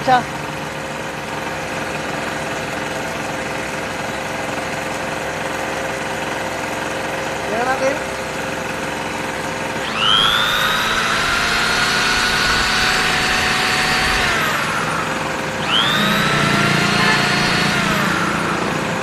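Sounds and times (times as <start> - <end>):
electric drill motor whining: 0.0 - 19.0
small generator engine running: 0.0 - 19.0.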